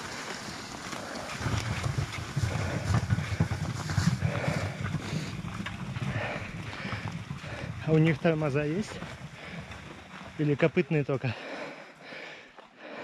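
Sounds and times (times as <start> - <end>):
footsteps on snowy road: 0.0 - 13.0
wind buffeting microphone: 1.2 - 11.0.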